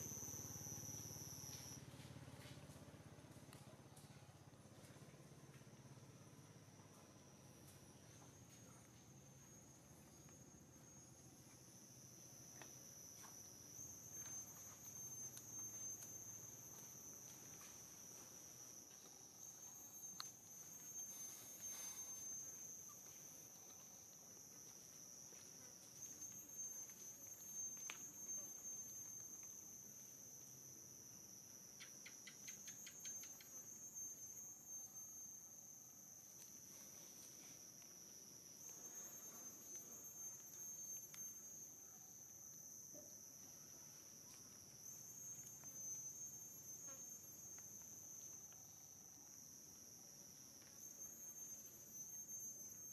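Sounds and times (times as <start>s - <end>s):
insects trilling: 0.0s - 2.6s, 3.5s - 52.9s.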